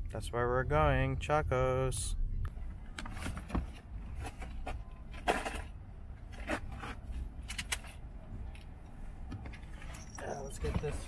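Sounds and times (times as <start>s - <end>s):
stroller frame clicks and rattles: 3.0s - 8.7s
stroller scrape: 4.1s - 7.2s.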